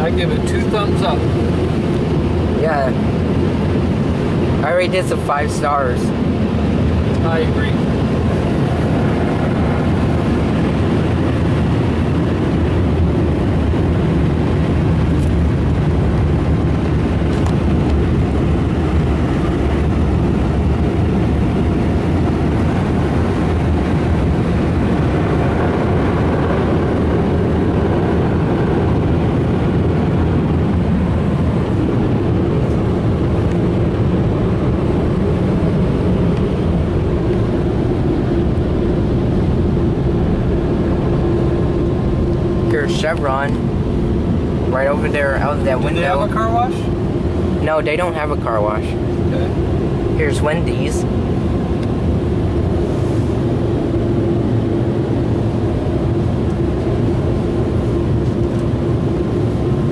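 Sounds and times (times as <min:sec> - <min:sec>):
car wash air dryers blowing: 0:14.8 - 0:59.6.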